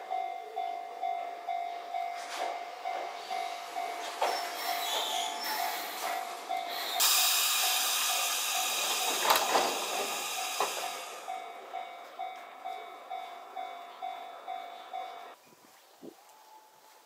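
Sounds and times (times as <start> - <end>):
bell-like warning tone: 0.0 - 9.2, 10.0 - 15.4
train door clunk: 2.1 - 6.4, 8.6 - 11.2
air hiss from train: 3.1 - 11.5.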